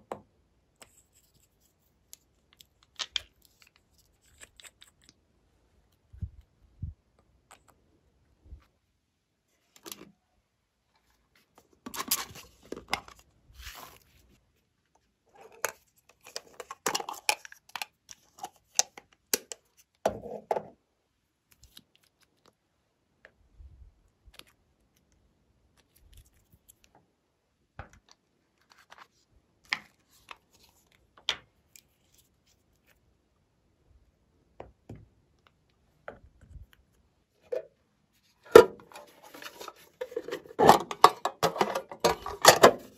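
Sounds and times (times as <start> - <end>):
plastic containers clicking and tapping: 38.5 - 42.9.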